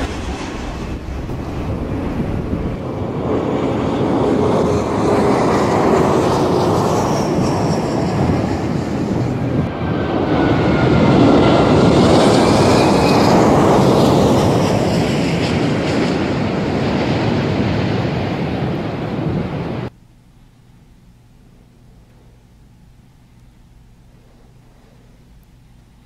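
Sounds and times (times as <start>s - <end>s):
engine whine sliding down in pitch: 0.0s - 5.0s
jet airliner engine roar: 0.0s - 19.9s, 24.0s - 25.2s.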